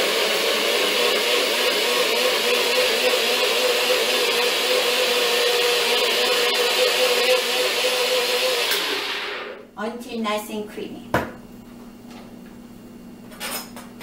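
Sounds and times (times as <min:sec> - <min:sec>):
blender motor whine: 0:00.0 - 0:09.6.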